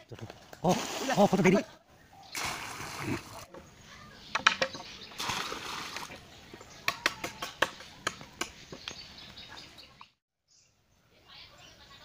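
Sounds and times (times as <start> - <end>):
water splashing into pit: 0.6 - 1.4, 2.3 - 3.5, 5.2 - 6.1.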